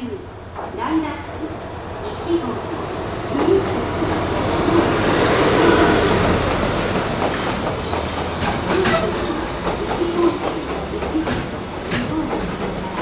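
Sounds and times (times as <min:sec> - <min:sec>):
train wheels clattering: 0:05.1 - 0:13.0
train wheel squeals: 0:07.3 - 0:11.4.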